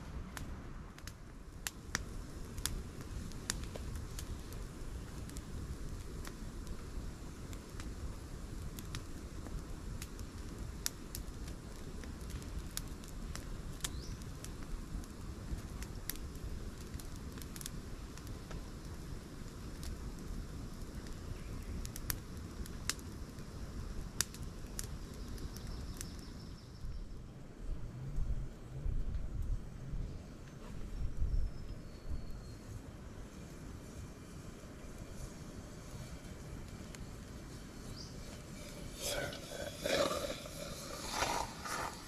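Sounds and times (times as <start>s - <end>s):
low rushing noise: 34.2s - 42.0s.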